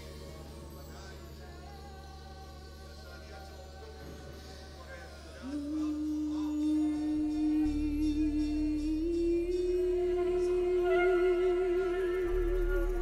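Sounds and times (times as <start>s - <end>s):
low sustained bass: 5.4s - 13.0s
held melody note: 5.6s - 13.0s.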